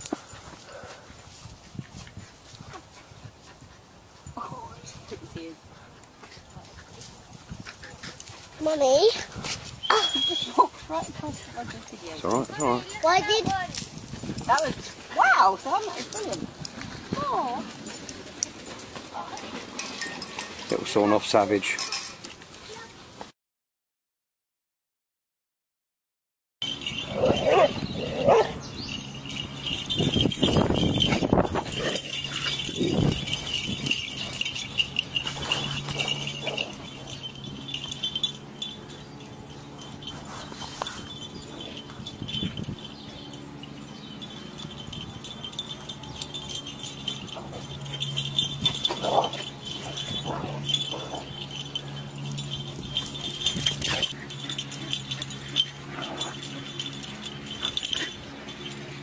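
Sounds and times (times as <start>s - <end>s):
dogs play-fighting: 0.0s - 20.5s, 26.6s - 59.0s
high jingling: 0.0s - 22.9s, 26.6s - 59.0s
dog barks: 27.2s - 28.6s.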